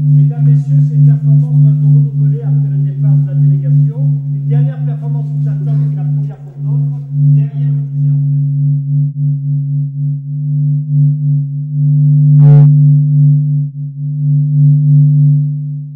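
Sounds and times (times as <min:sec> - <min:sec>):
electronic drone: 0:00.0 - 0:15.5
short buzz: 0:12.3 - 0:13.0.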